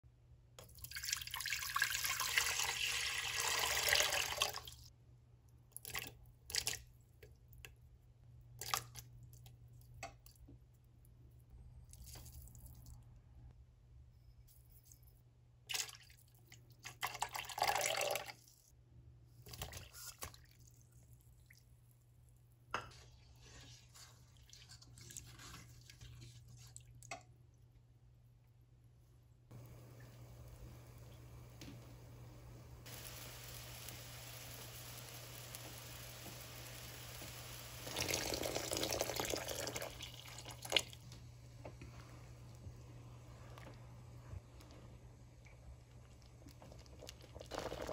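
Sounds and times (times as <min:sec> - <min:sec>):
water pouring into pot: 0:00.7 - 0:04.9, 0:17.0 - 0:18.4, 0:29.6 - 0:41.0, 0:46.2 - 0:47.9
faint stirring: 0:22.8 - 0:27.3.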